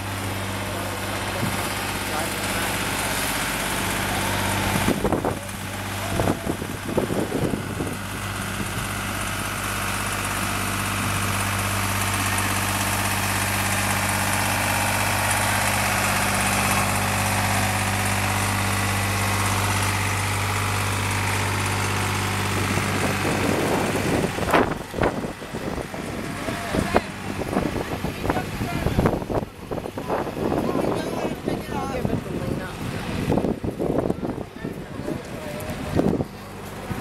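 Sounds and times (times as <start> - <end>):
tractor engine running: 0.0 - 37.0
voices: 0.0 - 37.0.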